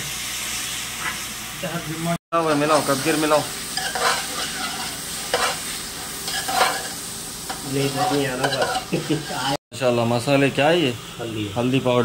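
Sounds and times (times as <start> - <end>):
vegetables sizzling: 0.0 - 12.0
spoon scraping pot: 3.8 - 9.6.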